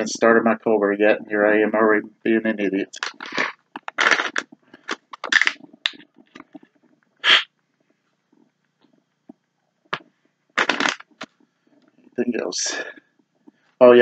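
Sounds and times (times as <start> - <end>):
paper rustling: 3.0 - 5.6, 10.6 - 11.3
short sharp hiss: 7.2 - 7.5.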